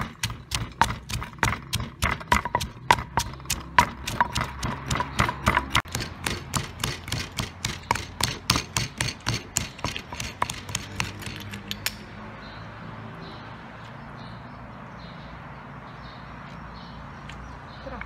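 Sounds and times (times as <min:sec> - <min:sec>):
pestle pounding in stone mortar: 0:00.0 - 0:11.5.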